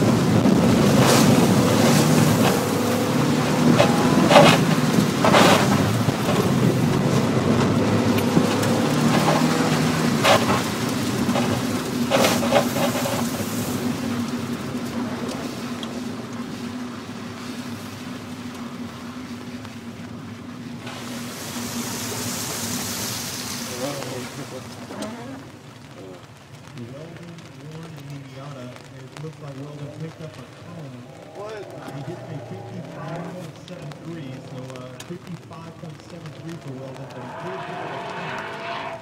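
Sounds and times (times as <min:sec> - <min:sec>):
car engine from inside cabin: 0:00.0 - 0:19.1
water spraying over car: 0:00.0 - 0:39.0.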